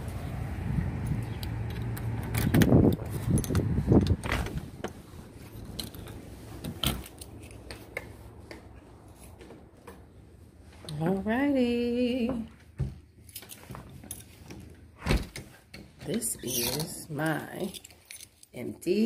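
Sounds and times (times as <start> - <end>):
low outdoor rumble: 0.0 - 12.8
keys jangling: 13.2 - 14.4, 16.3 - 18.6.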